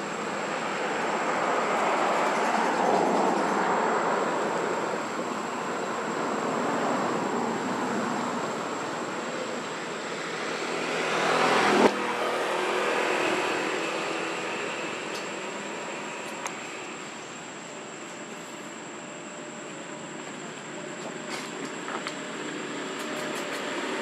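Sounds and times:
high-pitched whine: 0:00.0 - 0:21.0
engine hum: 0:00.0 - 0:24.0
vehicle noise: 0:00.0 - 0:24.0.

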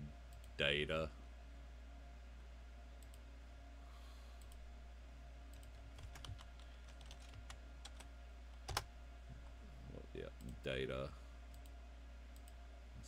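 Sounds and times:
steady low hum: 0:00.0 - 0:13.0
keyboard keystrokes: 0:05.5 - 0:08.9.

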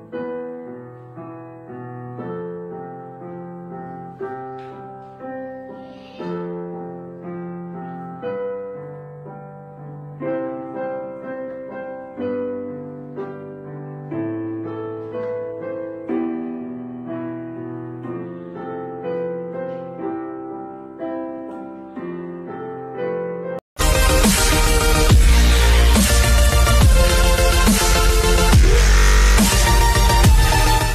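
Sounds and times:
gentle piano music: 0:00.0 - 0:23.6.

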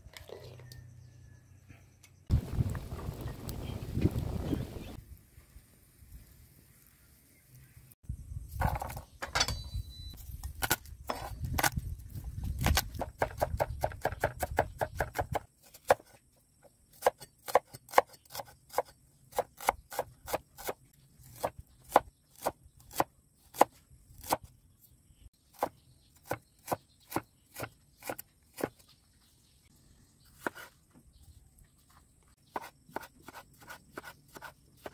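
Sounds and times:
low rumble: 0:02.3 - 0:05.0.

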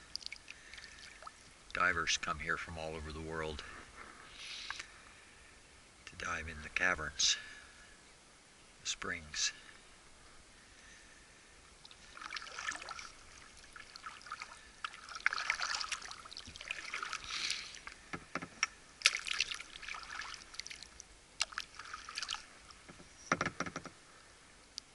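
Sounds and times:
small sharp clicks: 0:00.0 - 0:00.6
kayak paddle splashing: 0:00.0 - 0:01.9, 0:11.8 - 0:18.1, 0:18.9 - 0:23.0
water dripping: 0:00.0 - 0:01.9, 0:11.7 - 0:23.0.

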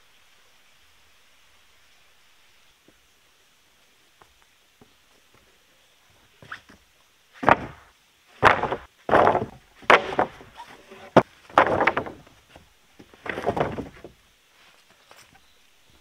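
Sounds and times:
wooden boards dropped on wood: 0:07.4 - 0:14.2.

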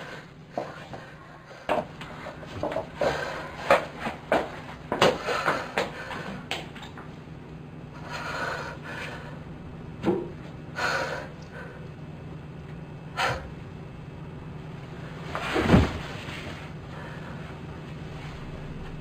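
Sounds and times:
man breathing heavily: 0:00.0 - 0:04.2, 0:05.0 - 0:06.5, 0:07.9 - 0:09.6, 0:10.7 - 0:12.0, 0:13.1 - 0:13.6, 0:16.8 - 0:17.8.

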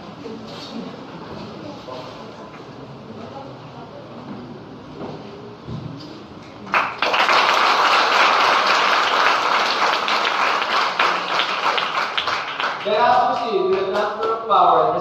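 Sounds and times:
audience applauding: 0:06.7 - 0:14.1.

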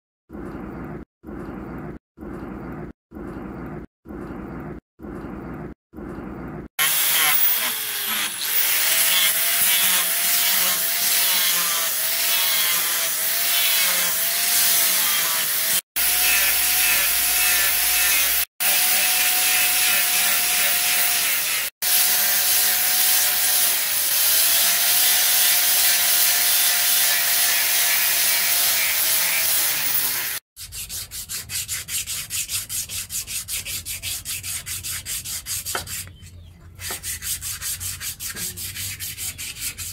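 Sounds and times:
angle grinder grinding steel: 0:06.8 - 0:30.4
hand sanding wooden handle: 0:26.2 - 0:39.9.

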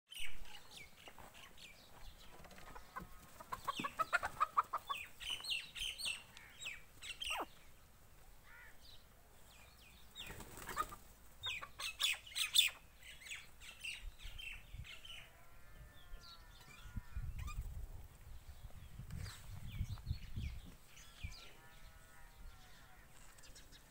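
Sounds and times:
small birds chirping: 0:00.1 - 0:23.9
chickens clucking: 0:02.2 - 0:07.6, 0:10.2 - 0:12.8
wavering bird call: 0:07.2 - 0:07.5.

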